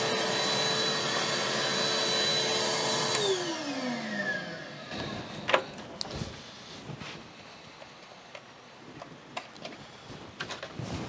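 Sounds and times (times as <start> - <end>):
shop vacuum running: 0.0 - 6.9.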